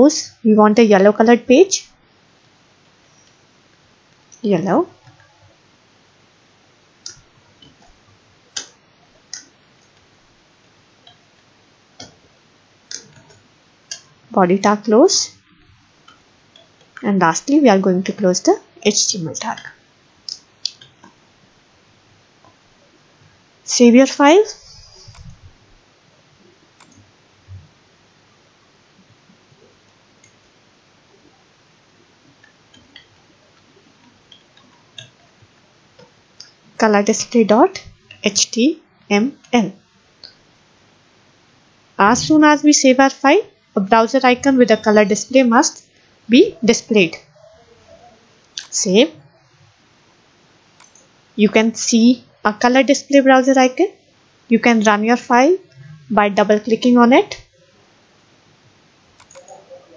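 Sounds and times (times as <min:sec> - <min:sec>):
low steady hiss: 0:00.0 - 0:59.9
keyboard typing clicks: 0:59.2 - 0:59.6.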